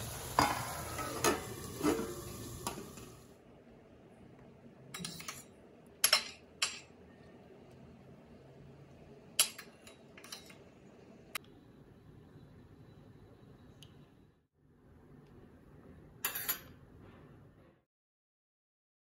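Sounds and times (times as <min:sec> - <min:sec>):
metal spoon clinking on plate: 0:16.2 - 0:16.8.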